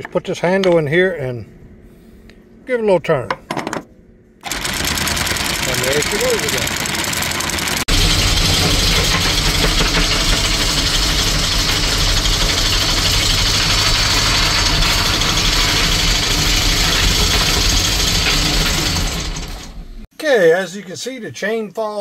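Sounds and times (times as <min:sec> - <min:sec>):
electric windlass motor running: 0:04.4 - 0:20.0.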